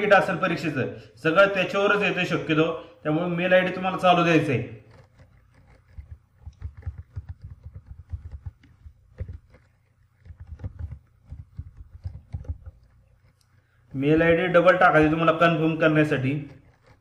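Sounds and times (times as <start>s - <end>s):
keyboard typing: 3.5s - 17.0s.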